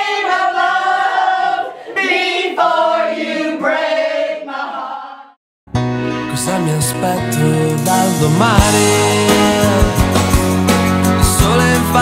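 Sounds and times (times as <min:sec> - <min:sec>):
group singing unaccompanied: 0:00.0 - 0:05.4.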